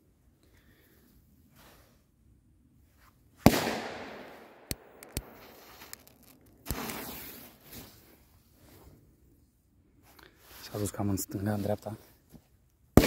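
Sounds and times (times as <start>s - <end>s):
firecracker bangs echoing: 3.5s - 5.6s
small sharp clicks: 4.6s - 7.0s.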